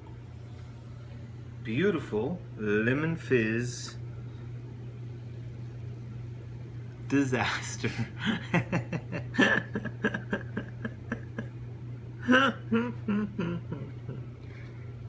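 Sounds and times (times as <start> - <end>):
low steady hum: 0.0 - 15.0
person laughing: 7.8 - 11.6, 12.2 - 14.4.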